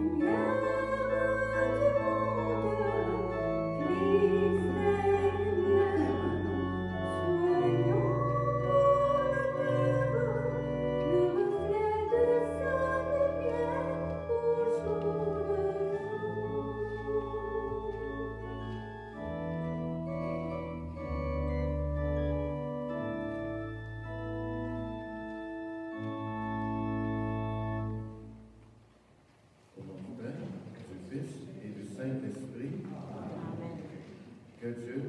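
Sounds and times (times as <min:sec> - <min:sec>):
person singing with vibrato: 0:00.0 - 0:18.7
organ playing chords: 0:00.0 - 0:28.8.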